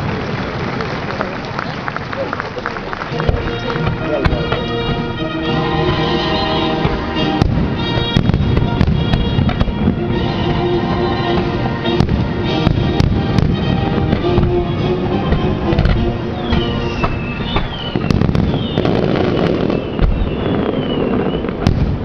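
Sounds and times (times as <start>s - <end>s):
fireworks bursting with sharp bangs: 2.6s - 22.0s
music with sustained tones: 3.1s - 19.4s.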